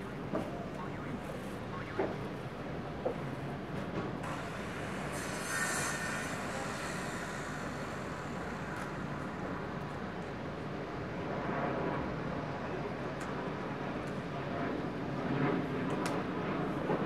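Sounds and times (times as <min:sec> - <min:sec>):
jet aircraft flying overhead: 0:00.0 - 0:17.0.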